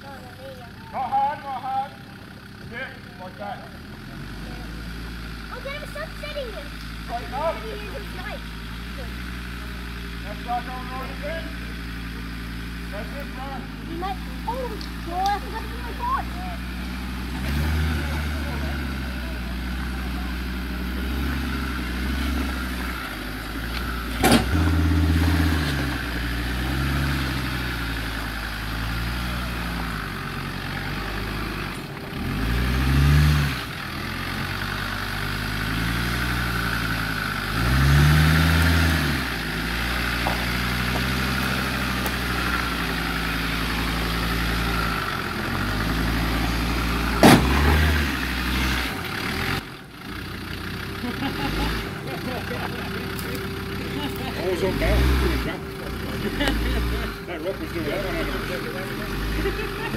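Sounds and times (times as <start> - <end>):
engine idling and revving: 0.0 - 59.9.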